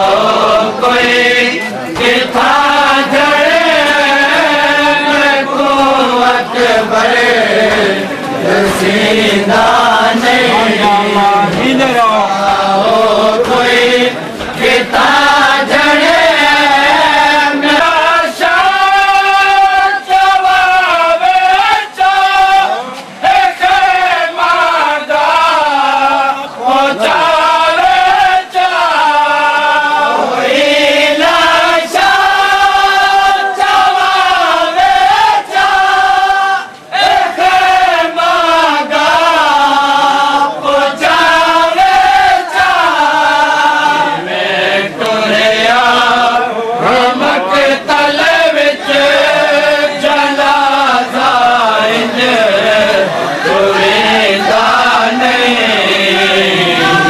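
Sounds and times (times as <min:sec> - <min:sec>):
man chanting a mourning lament: 0:09.8 - 0:14.1.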